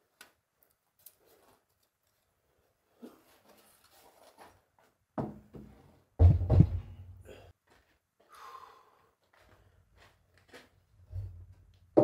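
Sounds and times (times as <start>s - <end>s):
wooden beam knocking and thudding: 5.2s - 7.0s.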